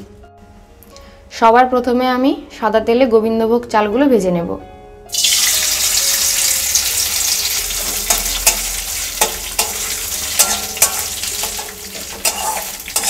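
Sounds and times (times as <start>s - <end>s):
rice sizzling in oil: 5.1s - 13.0s
metal spatula scraping pan: 6.7s - 13.0s.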